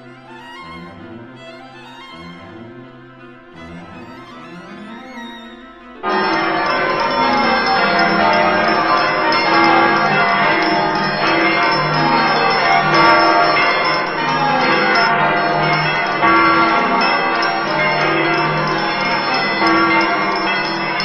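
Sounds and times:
many bells ringing: 0:06.0 - 0:21.0.

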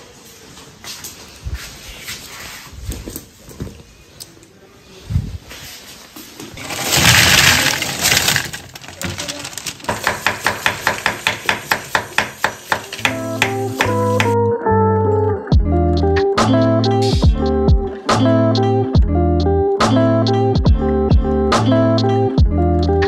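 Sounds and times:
frozen seafood clattering into colander: 0:06.6 - 0:10.4
knife chopping on wooden board: 0:09.9 - 0:14.4
guitar music: 0:13.0 - 0:23.0.

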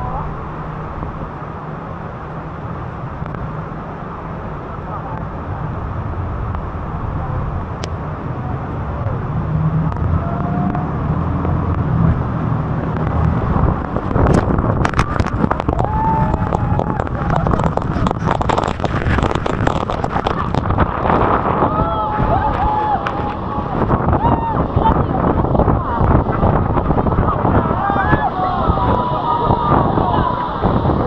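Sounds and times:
boat engine: 0:00.0 - 0:31.0
water splashing on boat: 0:00.0 - 0:31.0
waterfall roaring: 0:00.0 - 0:31.0
passengers crying out: 0:21.4 - 0:26.3, 0:26.9 - 0:31.0.

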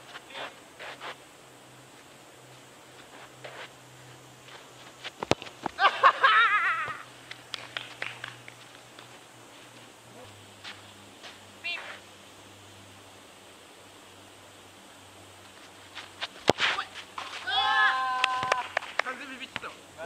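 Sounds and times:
man shouting: 0:16.8 - 0:18.7.

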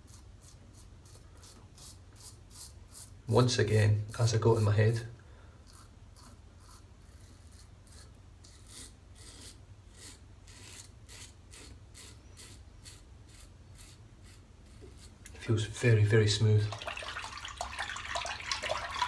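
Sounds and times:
razor scraping stubble: 0:00.0 - 0:03.2, 0:05.6 - 0:15.4.

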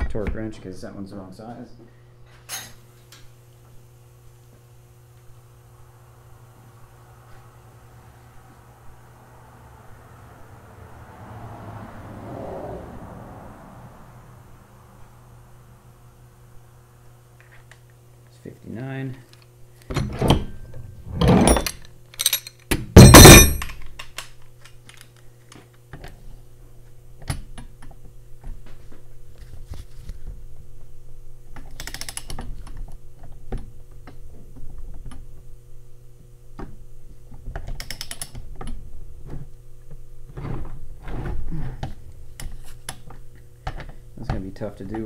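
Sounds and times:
loud metal clank: 0:23.0 - 0:23.8.

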